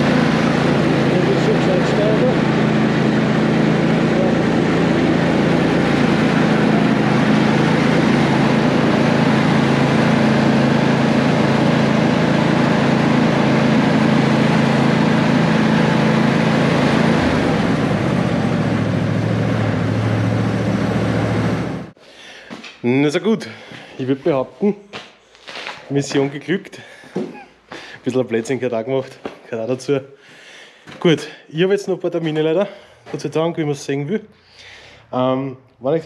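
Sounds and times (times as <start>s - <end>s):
lawn tractor engine running: 0.0s - 22.0s.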